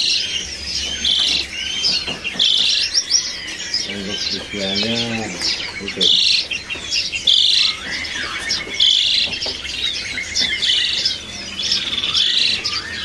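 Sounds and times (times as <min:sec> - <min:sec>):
starling harsh rattling calls: 0:00.0 - 0:13.0.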